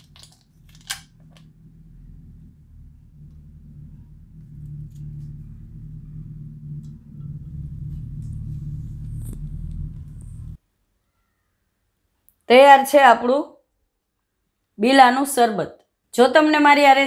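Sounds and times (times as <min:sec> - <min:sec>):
low rumbling hum: 0:00.0 - 0:10.6.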